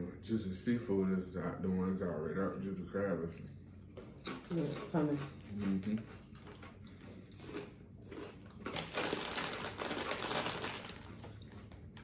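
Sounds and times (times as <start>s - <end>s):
crunchy chewing: 3.4s - 12.0s.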